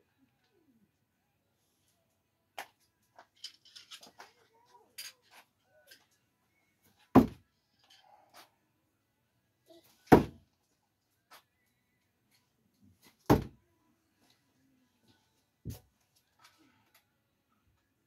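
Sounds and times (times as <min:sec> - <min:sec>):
metallic clicks and clinks: 0:03.0 - 0:06.2.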